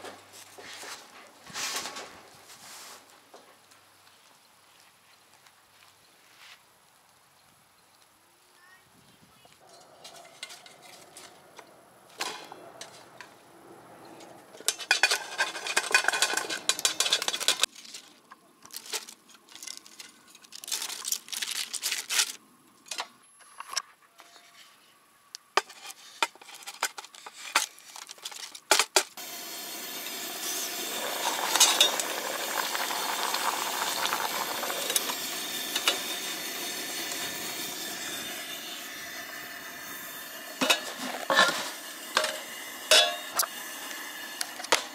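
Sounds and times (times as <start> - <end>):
camp stove hissing: 14.6 - 17.7, 29.2 - 44.9
pots and utensils clinking: 14.6 - 17.7, 28.7 - 44.9.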